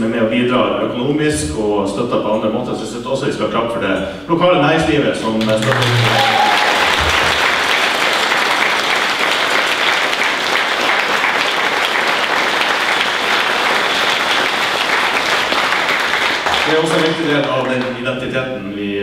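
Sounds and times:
crowd applauding: 5.4 - 18.2.

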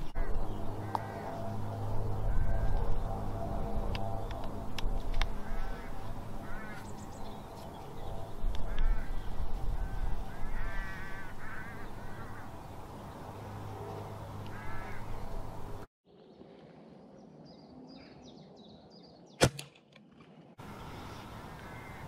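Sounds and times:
bird calling: 0.0 - 12.8, 13.8 - 15.5, 20.7 - 22.0.

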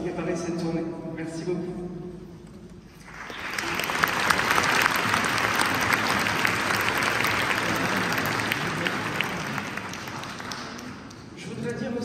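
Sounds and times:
audience applauding: 3.0 - 11.4.

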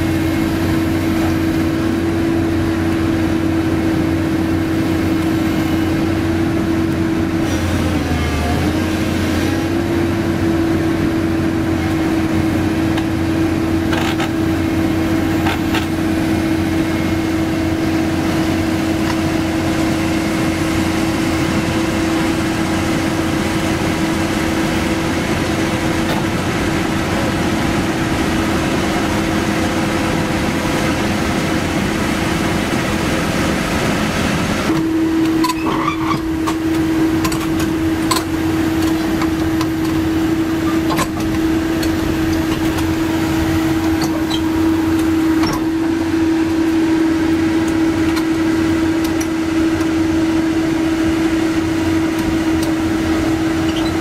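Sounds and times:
excavator diesel engine droning: 0.0 - 54.0.

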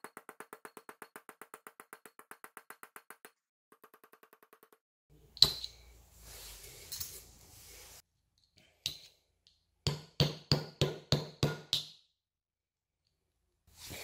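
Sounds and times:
hammer tapping nail into earthenware: 9.8 - 12.0.

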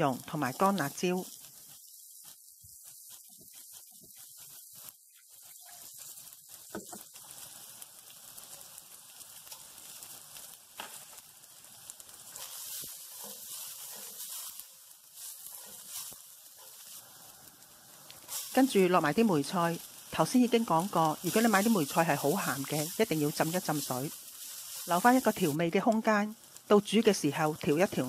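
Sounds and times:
spatula scraping wok: 0.0 - 25.9
food sizzling in hot oil: 0.0 - 28.0.

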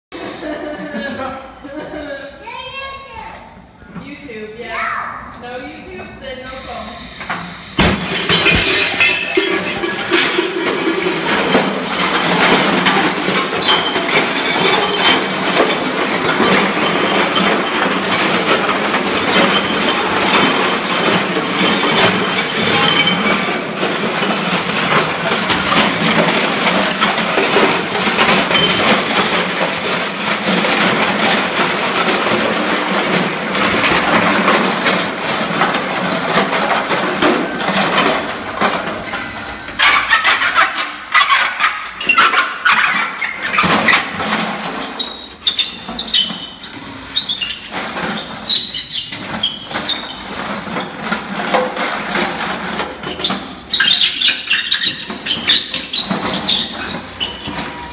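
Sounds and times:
distorted noise wall: 0.1 - 30.1
metal objects struck and scraped: 7.0 - 57.9.

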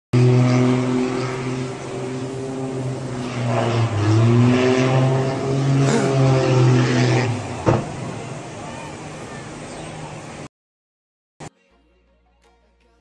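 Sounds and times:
propeller aircraft engine droning: 0.2 - 10.5.

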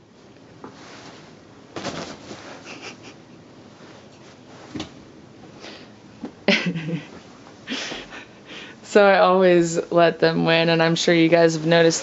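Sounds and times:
cat tussling with toy: 1.8 - 3.1.

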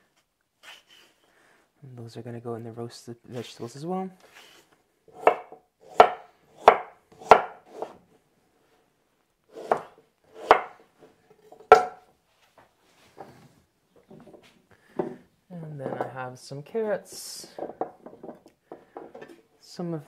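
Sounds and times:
knife chopping on wooden board: 5.2 - 7.9, 9.6 - 10.8, 11.7 - 12.0.

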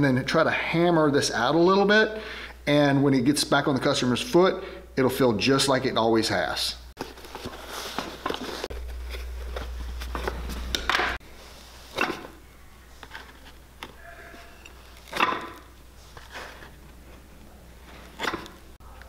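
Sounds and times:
low hum: 8.5 - 11.7.

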